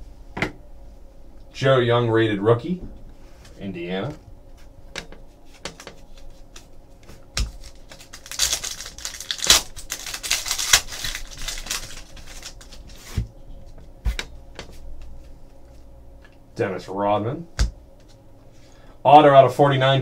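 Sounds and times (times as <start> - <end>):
wrapper being torn and crinkled: 7.4 - 13.0.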